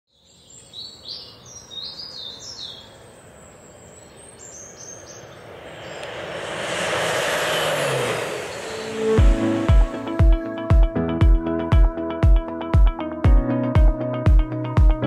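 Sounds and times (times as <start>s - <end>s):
birds chirping: 0.1s - 10.5s
airplane flyby: 3.8s - 10.7s.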